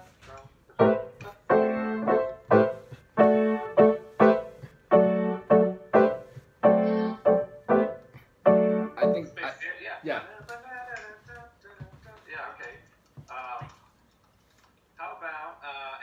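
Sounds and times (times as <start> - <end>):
piano block chords: 0.7 - 9.4.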